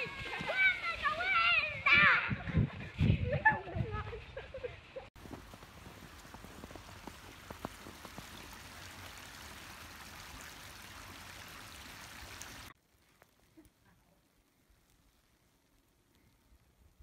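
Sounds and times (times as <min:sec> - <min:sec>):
creek rushing: 0:05.2 - 0:12.8.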